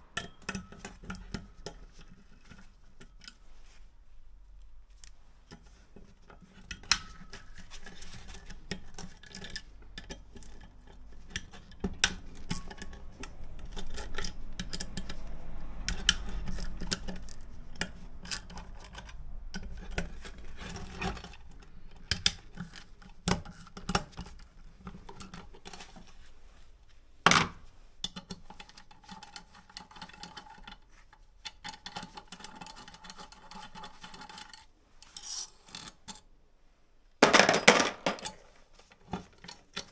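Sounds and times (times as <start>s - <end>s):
metallic clinks and scraping: 6.4s - 21.5s, 31.4s - 36.3s, 37.2s - 39.9s.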